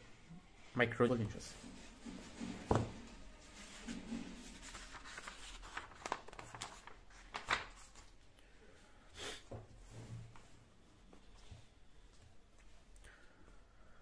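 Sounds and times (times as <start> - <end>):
sharp paper swishes: 1.6 - 8.0
paper pages rustling: 1.6 - 8.2.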